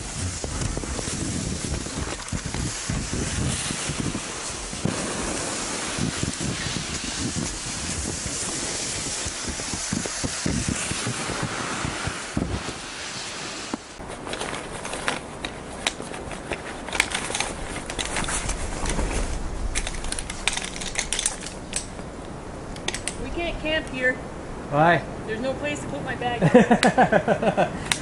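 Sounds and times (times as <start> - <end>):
sled hauled across snow: 0.0 - 22.1
wind buffeting microphone: 0.0 - 26.4
sharp clicks: 16.9 - 23.2.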